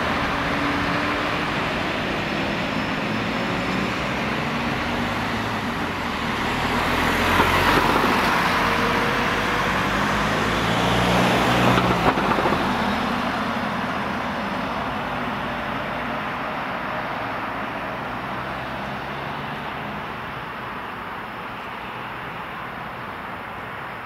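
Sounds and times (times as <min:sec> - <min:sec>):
fire engine diesel engine: 0:00.0 - 0:24.0
tyres rushing on road: 0:00.0 - 0:24.0.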